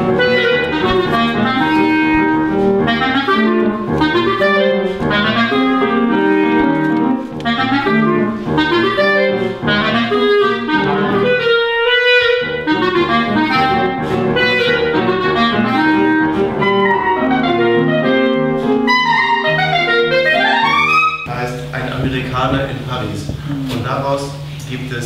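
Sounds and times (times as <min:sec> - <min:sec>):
clarinet playing lively melody: 0:00.0 - 0:23.8
lower musical accompaniment: 0:00.0 - 0:25.0.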